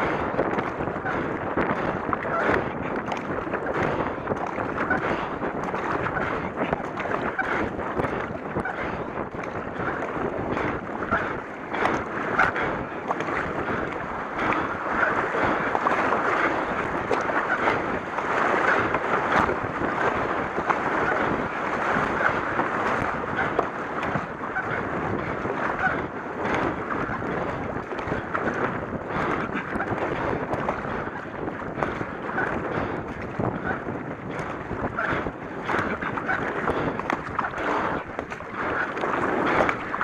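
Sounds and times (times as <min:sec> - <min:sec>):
river water rushing: 0:00.0 - 0:00.4, 0:09.7 - 0:31.0
paddle strokes splashing: 0:00.0 - 0:40.0
wind buffeting microphone: 0:00.0 - 0:40.0.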